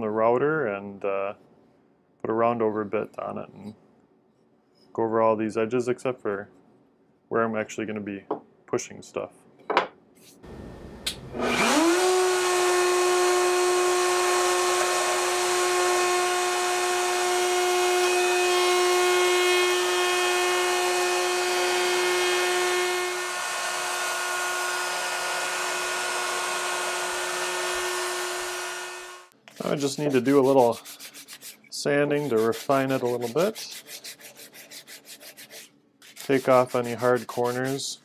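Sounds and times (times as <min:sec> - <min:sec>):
router whining while cutting wood: 0:10.5 - 0:29.3.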